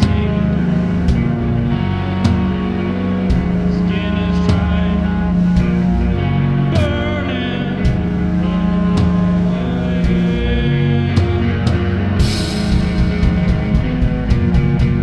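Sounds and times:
drum beat: 0.0s - 7.2s, 11.1s - 15.0s
rock band playing: 0.0s - 15.0s.

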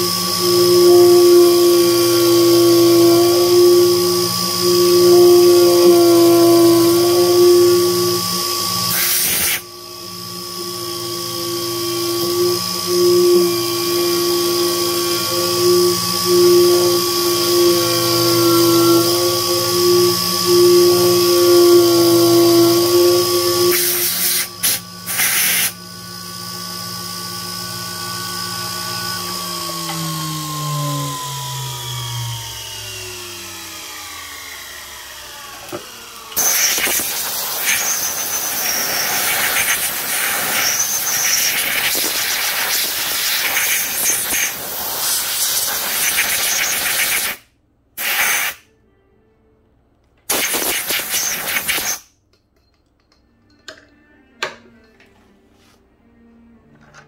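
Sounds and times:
milling machine spindle whine: 0.0s - 47.0s
hiss bursts: 8.9s - 9.6s, 23.7s - 25.8s, 36.4s - 47.4s, 48.0s - 48.7s, 50.3s - 52.1s
coolant mist spray hissing: 23.8s - 25.7s, 48.0s - 48.6s.

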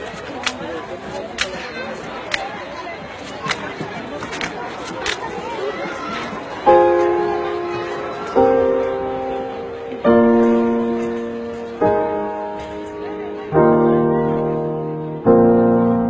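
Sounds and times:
slow piano chords: 6.6s - 16.0s.

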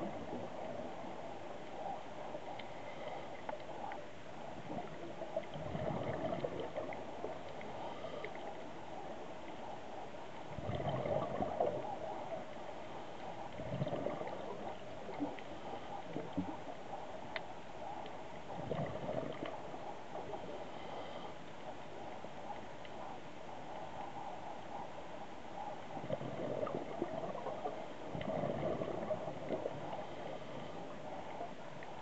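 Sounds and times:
faint clicks: 0.0s - 5.6s, 6.4s - 10.5s, 11.4s - 32.0s
regulator bubbling underwater: 4.5s - 8.2s, 10.4s - 12.6s, 13.4s - 16.7s, 18.5s - 21.1s, 25.8s - 32.0s.

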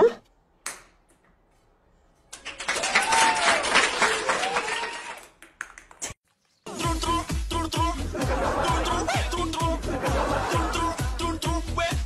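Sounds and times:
applause with cheering: 2.4s - 6.1s.

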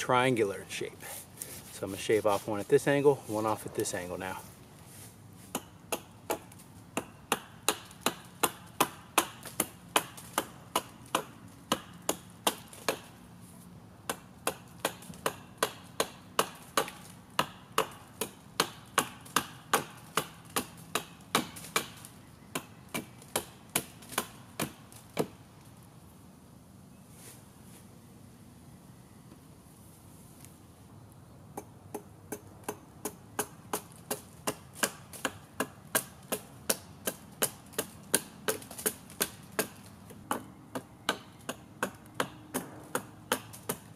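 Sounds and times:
hatchet chopping wooden pole: 5.4s - 13.2s, 14.0s - 25.4s, 31.6s - 43.9s.

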